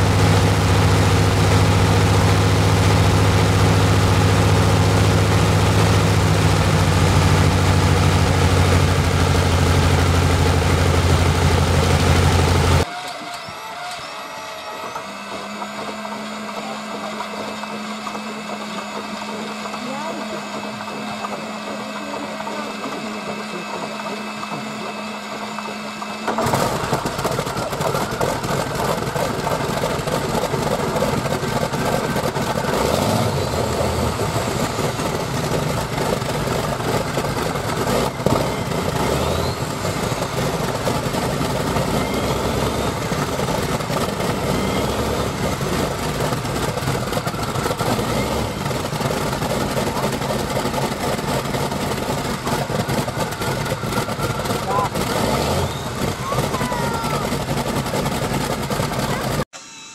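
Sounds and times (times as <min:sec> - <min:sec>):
radial aircraft engine running: 0:00.0 - 0:59.5
starter whine: 0:00.0 - 0:59.9.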